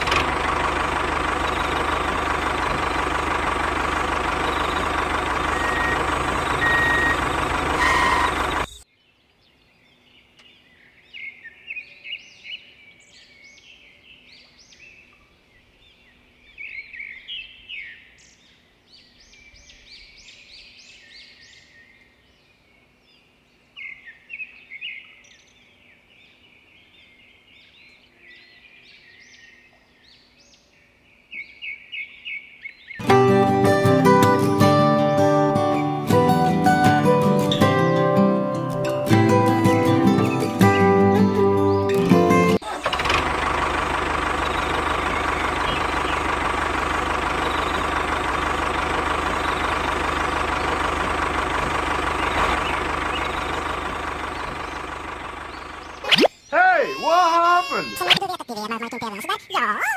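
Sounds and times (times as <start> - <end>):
motor running loudly: 0.0 - 8.8, 42.8 - 56.1
birds chirping: 0.0 - 33.5, 43.6 - 59.9.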